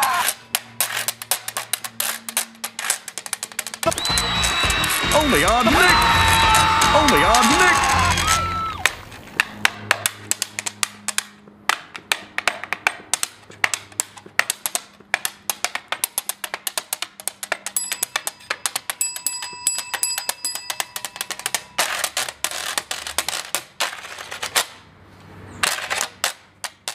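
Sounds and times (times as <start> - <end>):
thimbles tapping washboard: 0.0 - 24.8, 25.6 - 26.9
bell ringing: 17.8 - 21.9.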